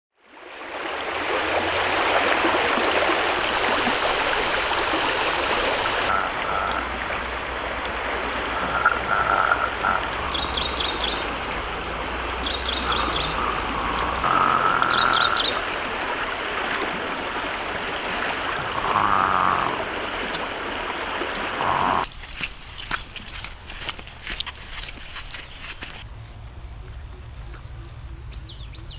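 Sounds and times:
rushing river water: 0.2 - 26.1
short animal calls: 6.0 - 7.2, 8.4 - 11.3.

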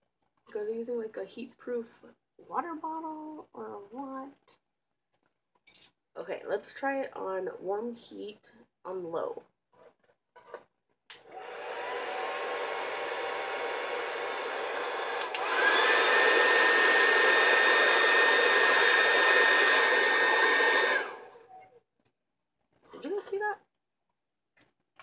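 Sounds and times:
hair dryer blowing: 11.2 - 21.4
hair dryer switch click: 15.1 - 16.1, 20.6 - 21.2.

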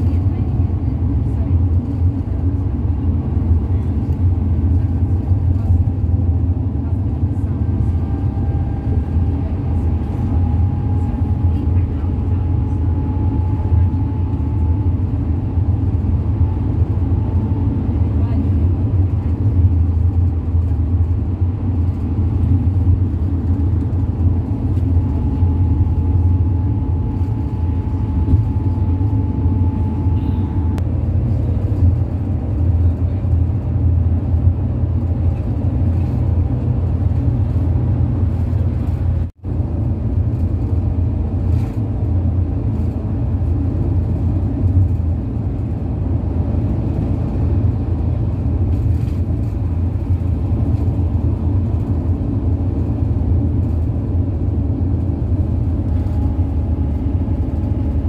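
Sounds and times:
road rumble inside vehicle: 0.0 - 58.0
faint steady whine: 24.6 - 30.8.

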